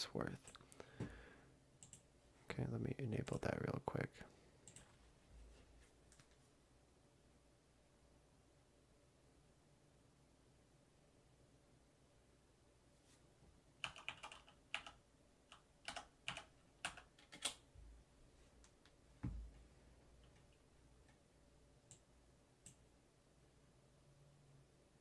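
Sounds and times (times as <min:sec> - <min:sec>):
mechanical keyboard typing: 0:13.8 - 0:17.6.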